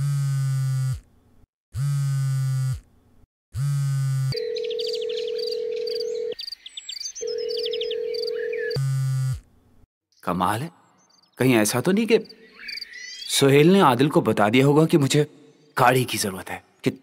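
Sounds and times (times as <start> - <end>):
phone vibrating on bed: 0.0 - 1.1, 1.8 - 2.9, 3.6 - 6.3, 7.3 - 9.4
birds chirping: 4.4 - 8.8, 10.1 - 14.1.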